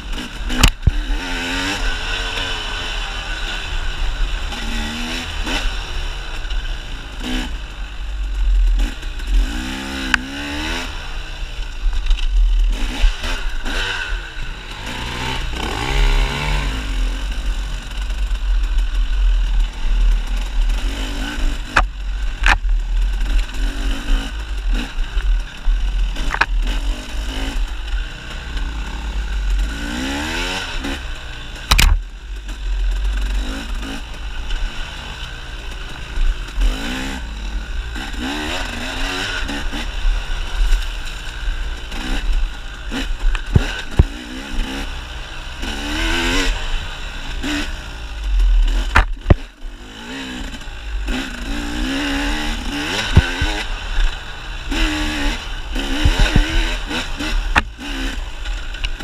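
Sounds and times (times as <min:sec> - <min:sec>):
dirt bike engine revving: 0:00.0 - 0:59.0
sharp clunks: 0:48.8 - 0:49.5.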